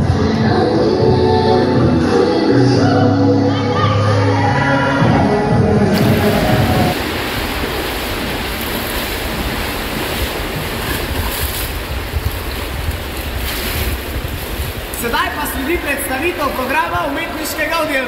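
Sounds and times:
pool water splashing: 5.9 - 18.0.

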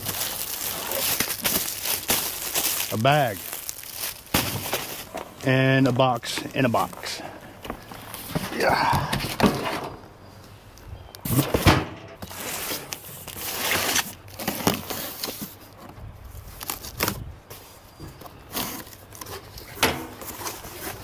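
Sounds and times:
cardboard packaging rustling and tearing: 0.0 - 5.4, 12.2 - 15.8, 16.4 - 17.2, 18.4 - 21.0.

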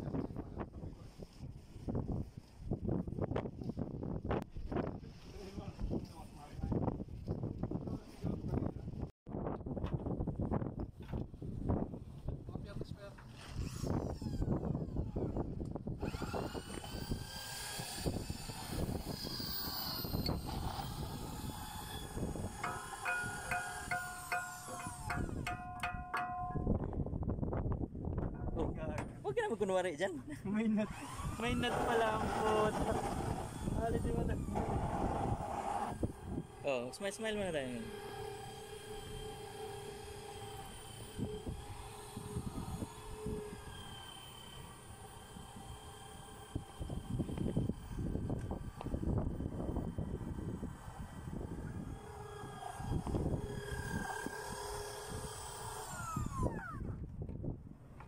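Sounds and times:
wind buffeting microphone: 0.0 - 29.5, 30.9 - 58.0
steady machinery hum: 16.5 - 26.9, 30.8 - 56.8.

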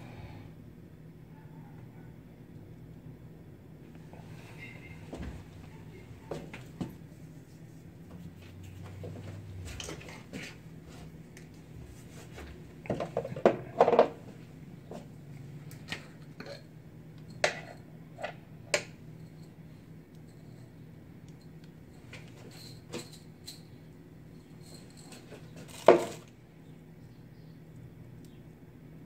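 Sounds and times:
kitchen items clattering: 12.9 - 14.2, 24.5 - 26.3.

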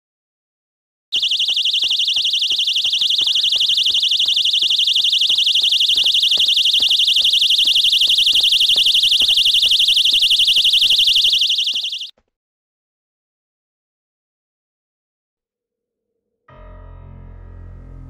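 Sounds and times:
shrill warbling electronic alarm: 1.2 - 12.1.

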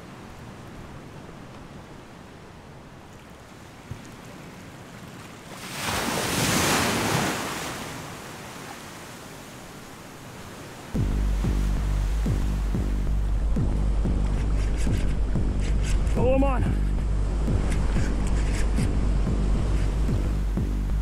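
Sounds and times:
seawater washing around pilings: 0.0 - 21.0
wave surging: 5.5 - 21.0.

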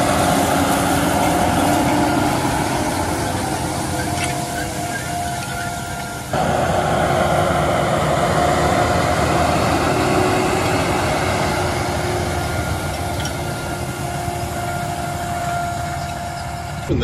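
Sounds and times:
thin whine: 0.0 - 17.0
tractor engine and track rumble: 0.0 - 17.0.

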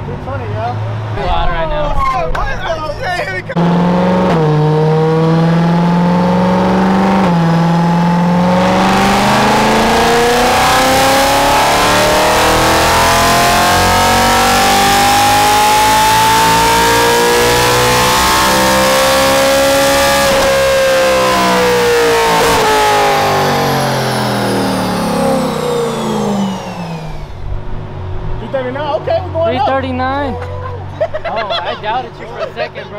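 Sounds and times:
engine revving on dyno: 3.6 - 28.6.

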